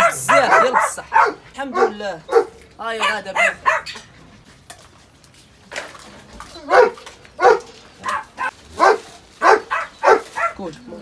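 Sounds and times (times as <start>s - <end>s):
dog barking: 0.0s - 4.0s, 6.7s - 10.6s.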